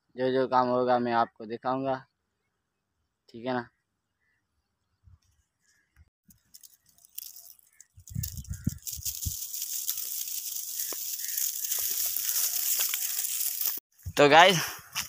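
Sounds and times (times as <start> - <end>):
dry wheat stalks rustling: 6.3 - 13.8.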